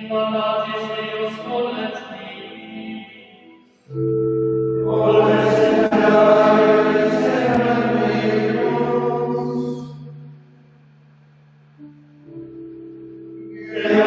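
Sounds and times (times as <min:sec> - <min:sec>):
organ chord: 0:02.6 - 0:14.0
men's choir chanting: 0:04.9 - 0:09.9, 0:13.6 - 0:14.0.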